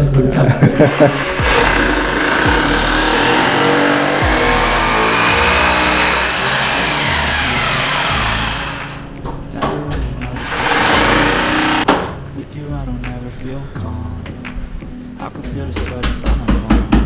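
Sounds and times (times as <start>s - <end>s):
electric drill boring into wall: 0.9s - 9.1s, 10.4s - 11.9s.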